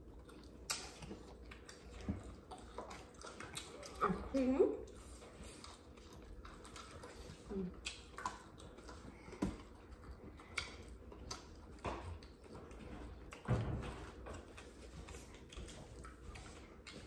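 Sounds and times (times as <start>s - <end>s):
clicks and taps of eating: 0.0s - 17.0s.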